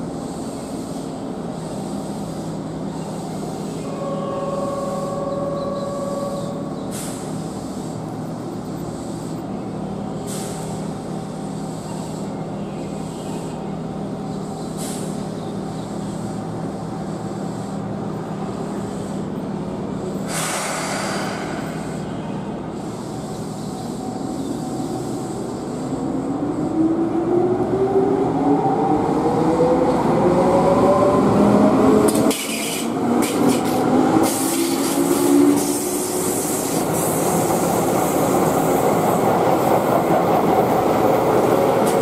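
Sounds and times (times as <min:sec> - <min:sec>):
electric train rumble: 0:00.0 - 0:42.0
short hisses: 0:06.9 - 0:08.0, 0:10.3 - 0:10.8, 0:14.8 - 0:15.2, 0:20.3 - 0:22.1.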